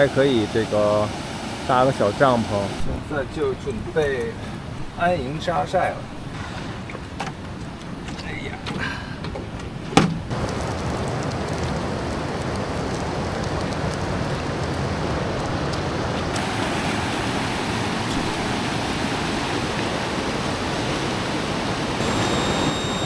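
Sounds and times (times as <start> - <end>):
stream water rushing over rapids: 0.0 - 6.4, 10.3 - 23.0.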